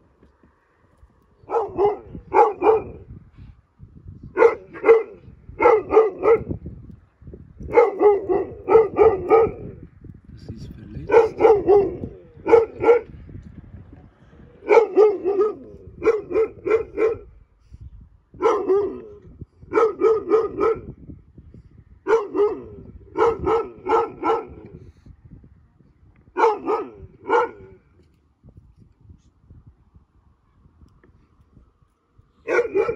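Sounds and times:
dog barking: 1.5 - 3.0, 4.3 - 6.6, 7.7 - 9.8, 11.1 - 13.1, 14.6 - 17.3, 18.4 - 21.0, 22.1 - 24.7, 26.4 - 27.8, 32.4 - 32.9.

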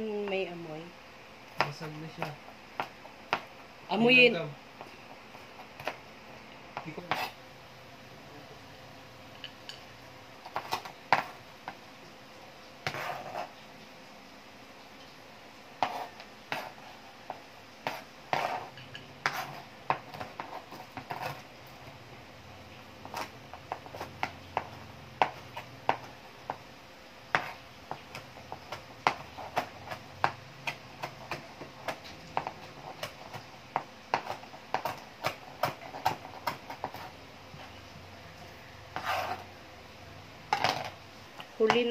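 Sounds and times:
knife chopping on plastic board: 1.6 - 3.5, 6.8 - 7.4, 10.4 - 11.8, 12.8 - 13.5, 15.8 - 21.4, 23.0 - 26.6, 27.3 - 37.1.

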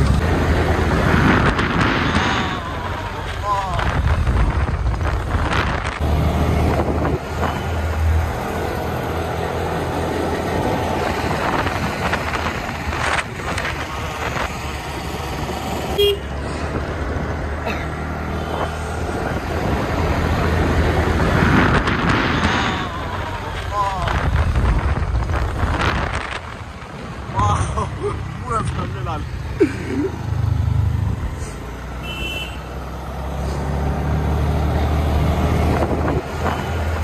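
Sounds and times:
vehicle road and wind rumble: 0.0 - 37.0
short car horn beep: 16.0 - 16.3, 32.0 - 32.6.

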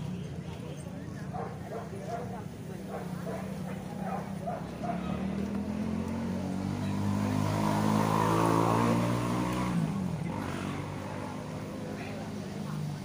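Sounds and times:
motor vehicle passing by: 2.9 - 13.0.

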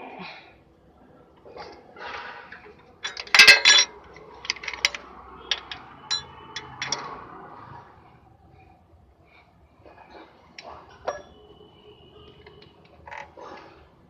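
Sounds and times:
metal wrench clinking: 2.6 - 7.1.

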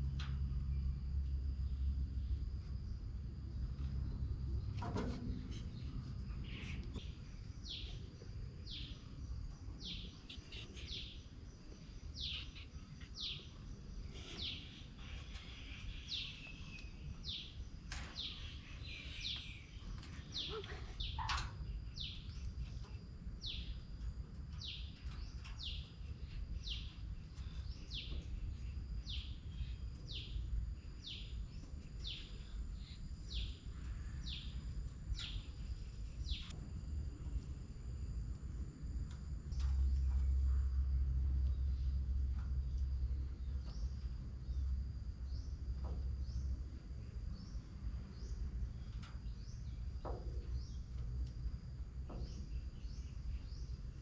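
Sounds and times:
low outdoor rumble: 0.0 - 54.0
bird chirping: 5.5 - 23.8.

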